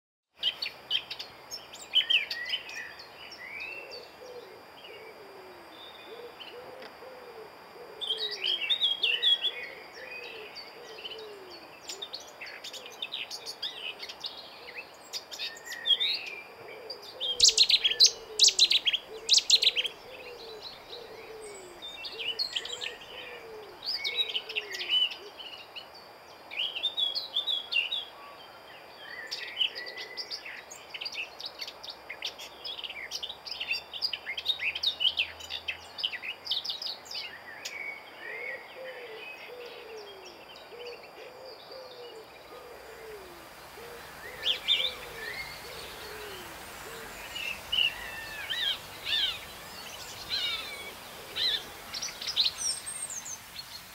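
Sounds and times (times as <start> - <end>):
songbirds chirping and warbling: 0.4 - 53.9
low falling bird call: 39.5 - 53.9.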